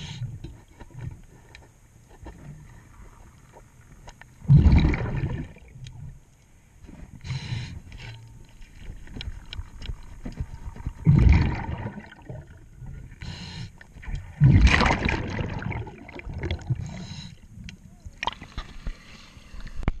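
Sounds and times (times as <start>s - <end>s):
exhaled bubbles rushing: 4.4s - 5.8s, 10.6s - 12.8s, 14.1s - 17.0s
hissing regulator inhalations: 6.8s - 8.2s, 13.1s - 13.9s, 16.8s - 17.5s.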